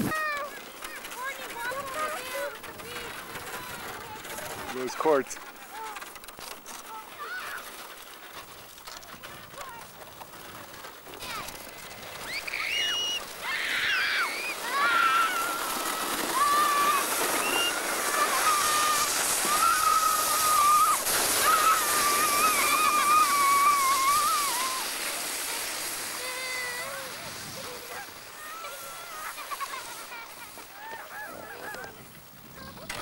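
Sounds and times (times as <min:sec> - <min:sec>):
steady hiss: 0:00.0 - 0:33.0
children squealing: 0:06.9 - 0:07.7, 0:12.1 - 0:32.0.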